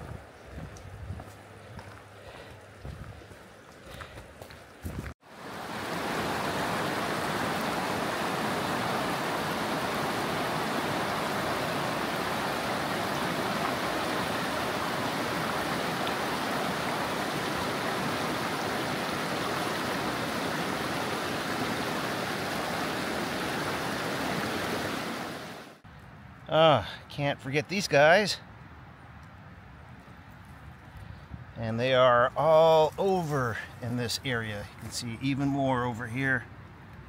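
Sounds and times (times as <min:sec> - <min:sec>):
creek water rushing: 0:01.4 - 0:25.8.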